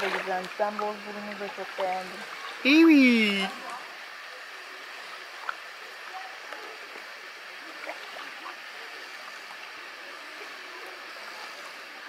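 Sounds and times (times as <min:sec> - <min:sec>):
water lapping against stone: 0:00.0 - 0:02.6
small ticks and splashes: 0:00.0 - 0:12.0.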